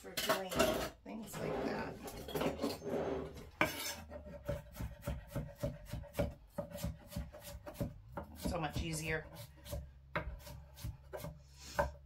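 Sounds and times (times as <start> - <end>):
kitchen utensils clattering: 0.0 - 4.2
knife chopping on wooden board: 3.6 - 12.0.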